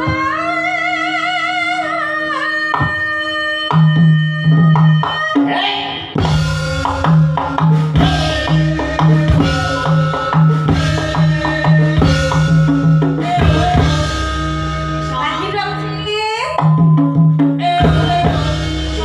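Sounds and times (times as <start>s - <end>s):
drum strokes: 4.7s - 19.0s
struck metallic notes: 5.4s - 19.0s.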